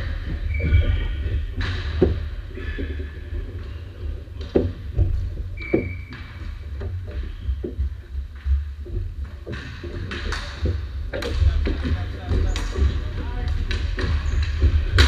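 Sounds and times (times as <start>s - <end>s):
sticks and ball clacking on floor: 0.0s - 15.0s
shoe squeak: 0.2s - 1.6s, 5.5s - 7.8s
steady low rumble: 6.2s - 15.0s.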